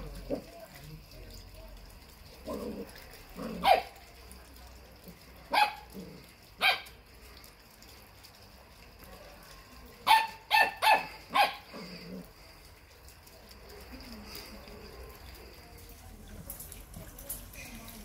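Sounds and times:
puppy barking: 3.5s - 4.0s, 5.5s - 6.0s, 6.6s - 7.0s, 10.0s - 11.8s.

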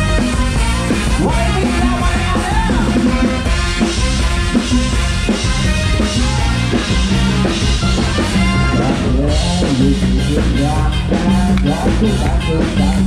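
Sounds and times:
drum kit beat: 0.0s - 13.0s
live band dance music: 0.0s - 13.0s.

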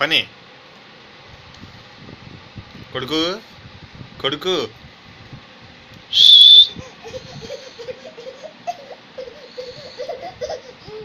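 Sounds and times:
high-pitched whistle-like squeal: 6.1s - 6.8s
infant babbling and cooing: 8.7s - 11.0s.

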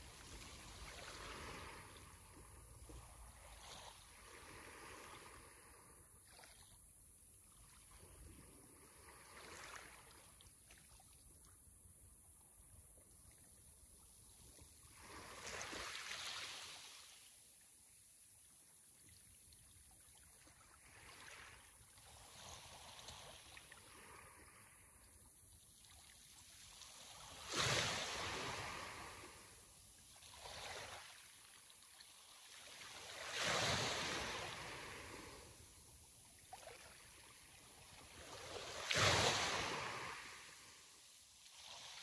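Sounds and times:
sea waves breaking on shore: 0.0s - 6.6s, 8.3s - 10.4s, 14.8s - 17.5s, 20.4s - 25.0s, 25.8s - 42.0s.

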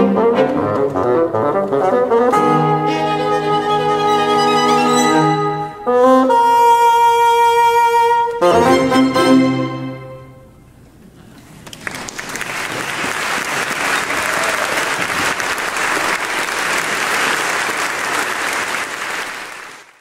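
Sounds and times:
audience applauding: 11.4s - 20.0s.

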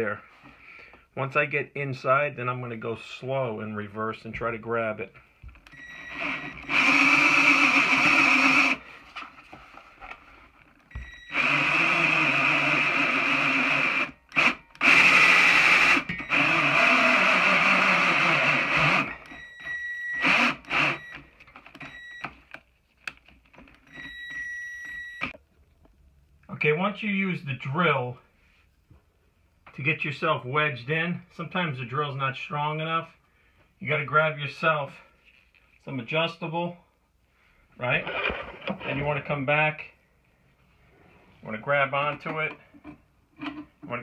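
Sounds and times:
cordless drill grinding: 5.6s - 8.9s, 10.9s - 22.2s.

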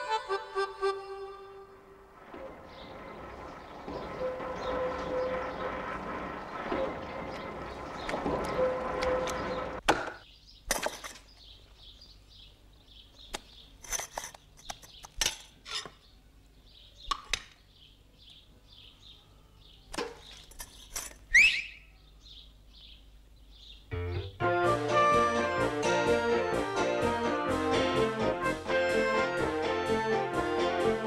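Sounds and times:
mixer truck engine humming: 1.3s - 9.8s
loud rising squeak: 2.2s - 9.8s
high bird chirps: 21.3s - 24.4s.

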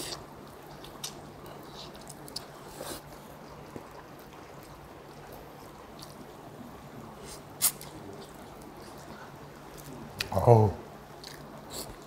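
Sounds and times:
person chewing meat: 0.0s - 6.3s.

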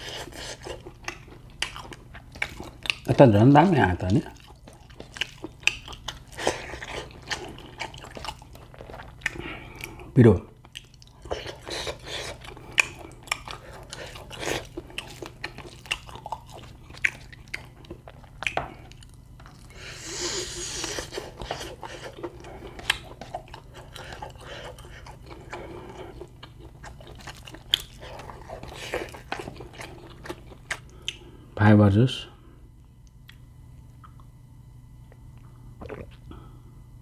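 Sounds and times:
chewing and crunching meat: 0.0s - 31.4s
breathy hiss: 19.7s - 22.1s
wet mouth clicks: 35.8s - 36.3s.

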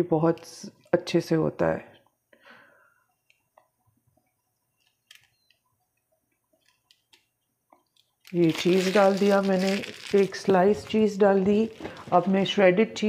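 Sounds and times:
faint clicks and taps: 3.2s - 8.2s.

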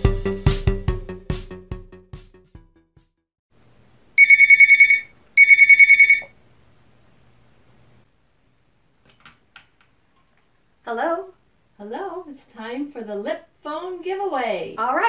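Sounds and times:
electronic telephone ringer trilling: 4.2s - 6.3s.

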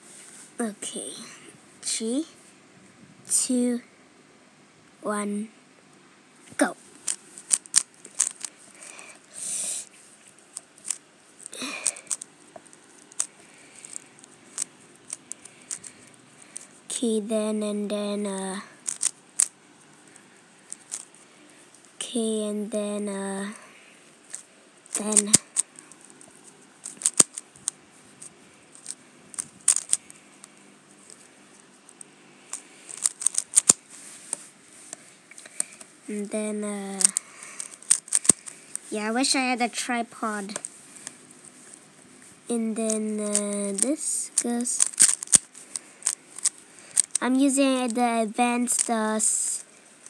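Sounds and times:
puzzle cube clicking: 6.6s - 9.9s, 10.5s - 16.8s, 18.8s - 19.5s, 20.7s - 21.2s, 24.3s - 26.2s, 26.8s - 30.2s, 32.0s - 34.4s, 36.5s - 39.0s, 42.6s - 49.6s
short hissing rushes: 8.9s - 9.9s.

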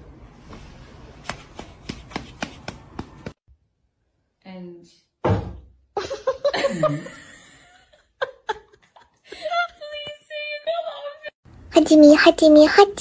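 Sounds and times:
person laughing: 6.0s - 7.4s.

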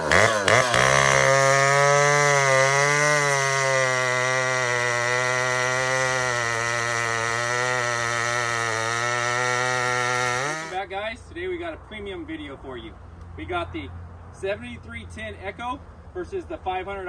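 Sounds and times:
chainsaw cutting hardwood: 0.0s - 10.8s.

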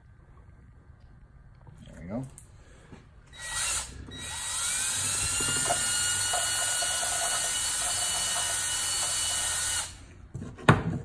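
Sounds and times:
electric drill whine: 3.3s - 10.0s.

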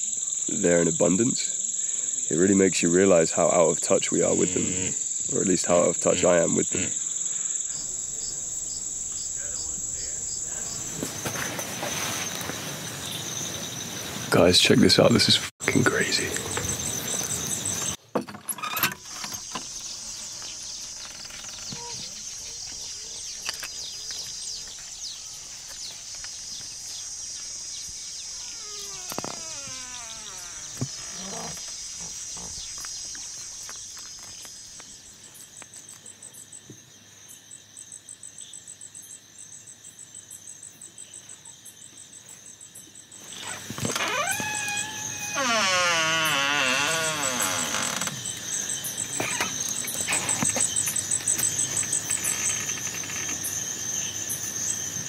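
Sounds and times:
crickets and insects chirring: 0.0s - 55.0s
door opening: 7.7s - 12.6s, 15.9s - 22.2s, 28.2s - 32.6s, 43.3s - 48.4s, 49.0s - 53.7s
short falling calls: 28.3s - 31.6s.

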